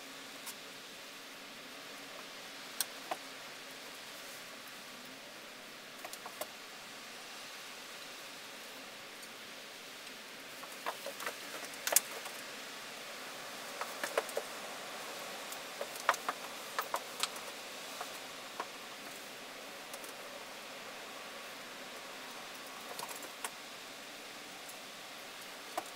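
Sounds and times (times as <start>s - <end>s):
steady hiss: 0.0s - 25.9s.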